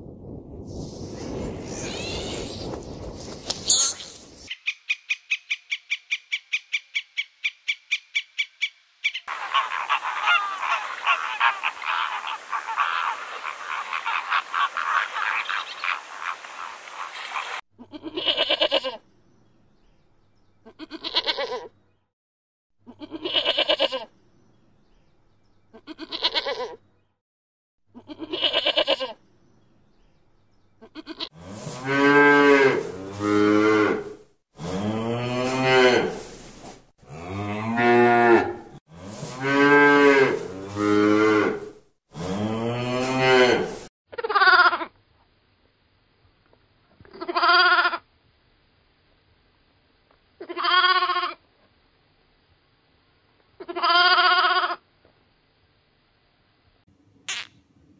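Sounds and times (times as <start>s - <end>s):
flamingos honking and chattering: 9.3s - 17.6s
sheep bleating: 22.9s - 24.1s, 25.8s - 26.8s, 28.0s - 29.2s, 47.2s - 48.0s, 50.4s - 51.4s, 53.6s - 54.8s
cows mooing: 37.1s - 38.8s, 39.4s - 43.8s.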